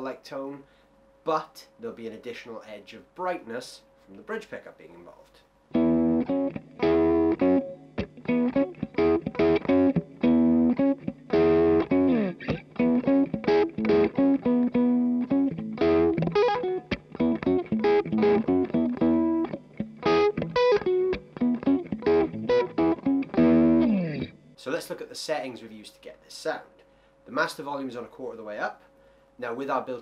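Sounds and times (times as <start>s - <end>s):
electric guitar lead phrases: 5.7s - 24.6s.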